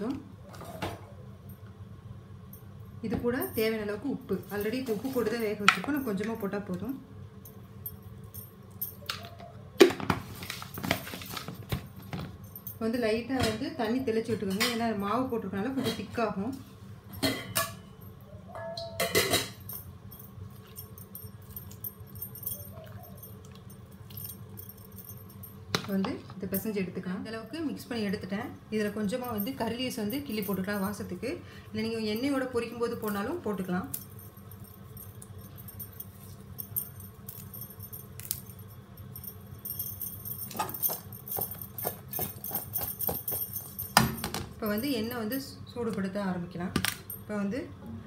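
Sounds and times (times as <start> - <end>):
steady low hum: 10.4 - 48.0
metal kitchenware clinking: 17.2 - 19.8.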